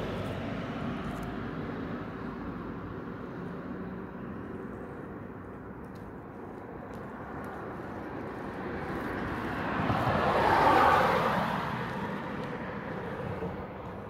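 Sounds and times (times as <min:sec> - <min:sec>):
road vehicle passing: 0:00.0 - 0:14.0.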